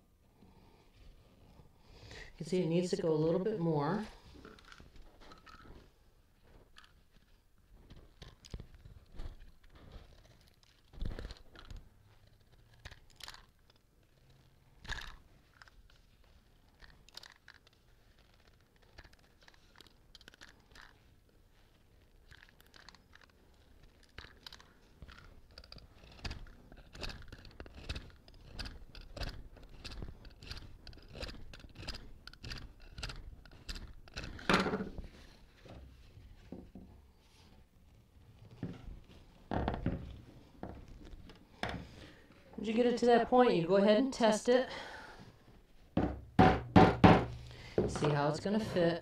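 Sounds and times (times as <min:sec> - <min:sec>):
blade scraping wooden dowel: 0:25.5 - 0:35.0
louder knocks: 0:46.0 - 0:48.0.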